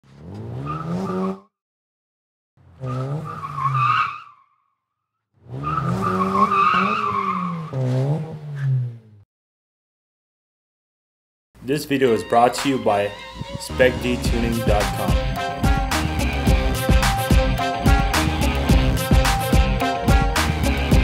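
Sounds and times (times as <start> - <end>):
car engine revving: 0.0 - 1.4, 5.4 - 9.2, 13.3 - 21.0
tyres squealing: 5.5 - 8.7.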